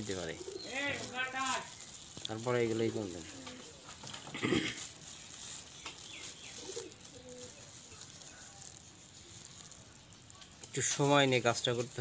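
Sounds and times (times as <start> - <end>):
dove cooing: 0.0 - 1.2, 3.2 - 8.8
plastic wrap crinkling: 0.0 - 12.0.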